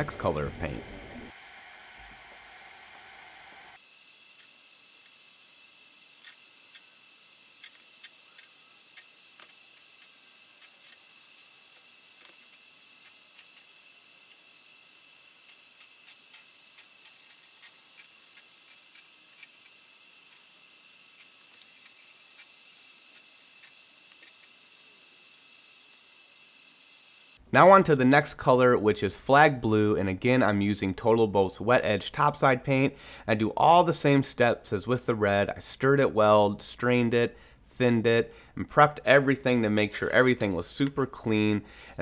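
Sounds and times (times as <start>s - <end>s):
thin high whine: 0.0s - 4.5s
room tone hiss: 0.0s - 42.0s.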